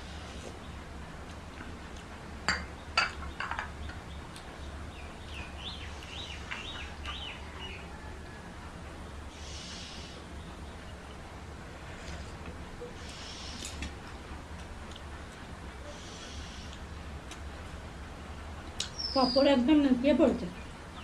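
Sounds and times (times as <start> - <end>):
dishes clinking: 2.5 - 3.7
small bird chirping: 18.8 - 19.6.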